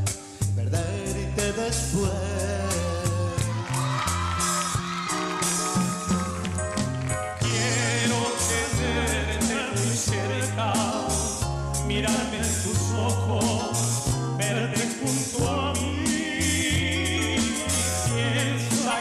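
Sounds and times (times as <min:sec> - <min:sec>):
backing music with bass: 0:00.0 - 0:19.0
men singing into microphones: 0:00.7 - 0:03.9, 0:07.4 - 0:19.0.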